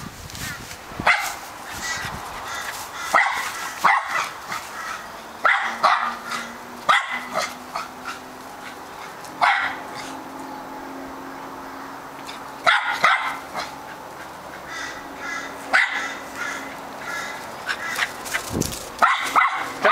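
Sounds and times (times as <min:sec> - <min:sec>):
dog barking: 0:01.0 - 0:01.4, 0:03.0 - 0:07.9, 0:09.4 - 0:10.2, 0:12.6 - 0:13.8, 0:15.7 - 0:16.6, 0:19.0 - 0:19.9.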